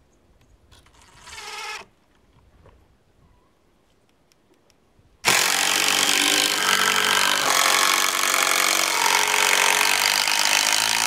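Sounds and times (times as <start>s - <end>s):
cordless drill whining: 1.0s - 1.9s, 5.3s - 11.0s.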